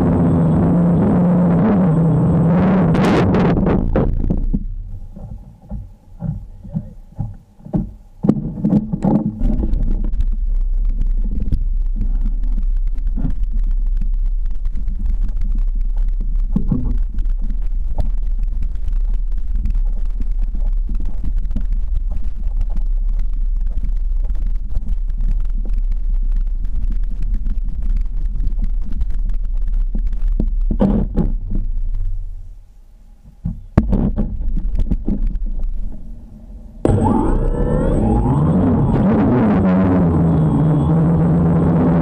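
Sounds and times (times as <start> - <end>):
quadcopter rotors rumbling: 0.0 - 7.3, 36.0 - 42.0.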